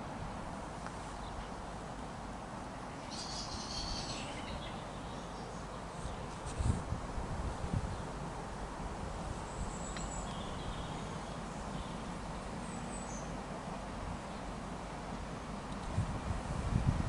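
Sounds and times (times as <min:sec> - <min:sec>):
faint bird chirps: 0:03.0 - 0:06.3, 0:09.5 - 0:13.4.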